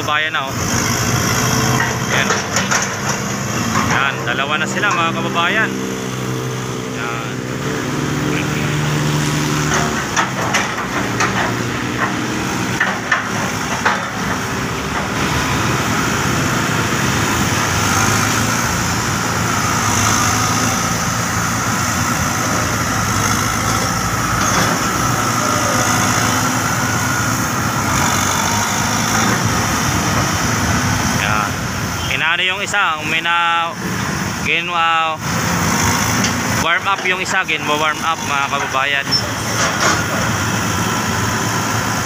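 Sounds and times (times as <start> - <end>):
diesel engine running: 0.0 - 42.0
sharp knocks: 9.6 - 15.2.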